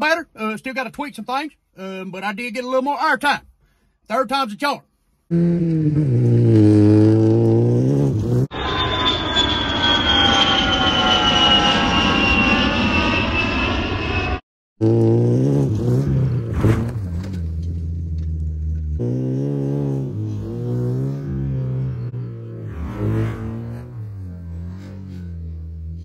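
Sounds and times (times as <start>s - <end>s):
small car engine revving: 5.3s - 8.6s, 14.8s - 26.0s
aircraft whine falling in pitch: 8.2s - 14.4s.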